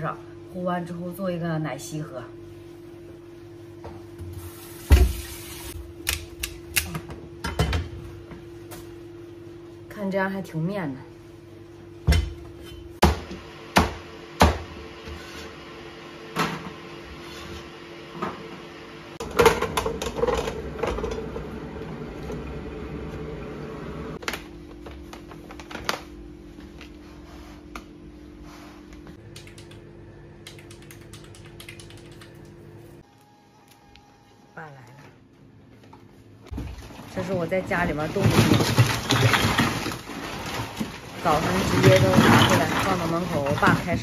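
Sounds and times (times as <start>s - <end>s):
squash pieces clattering into metal pot: 36.5s - 44.0s.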